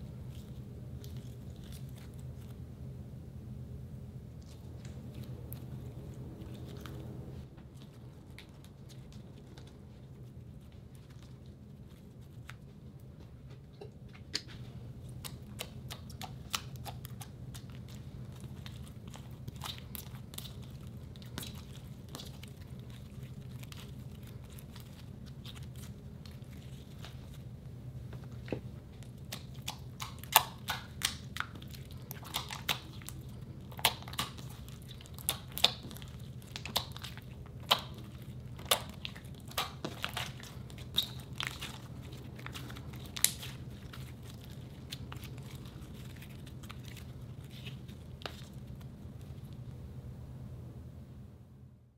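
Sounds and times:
slime kneaded by hand: 0:00.0 - 0:03.0, 0:04.0 - 0:49.9.

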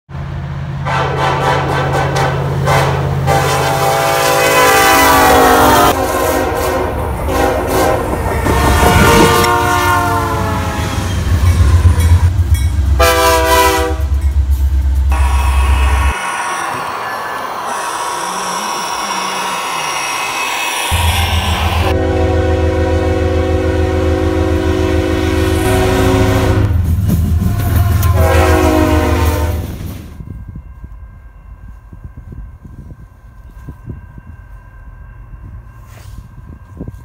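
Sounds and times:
low locomotive rumble: 0:00.1 - 0:37.0
locomotive air horn blasts: 0:00.8 - 0:11.3, 0:13.0 - 0:14.2, 0:15.1 - 0:17.1, 0:20.8 - 0:26.8, 0:27.4 - 0:29.8.

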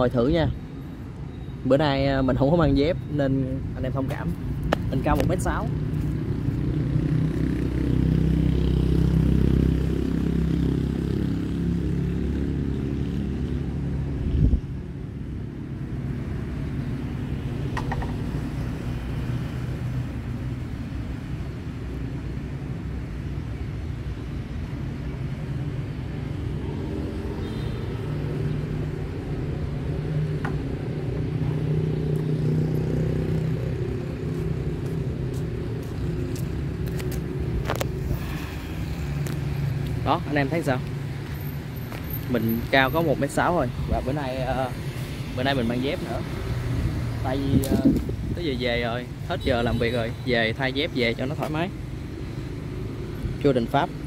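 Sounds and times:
road traffic rumble: 0:00.0 - 0:54.0.

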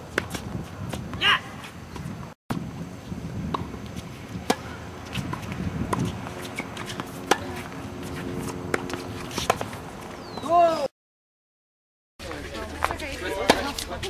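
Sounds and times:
tennis balls bouncing on hard court: 0:03.4 - 0:10.5
tennis balls struck by rackets: 0:03.4 - 0:10.6.

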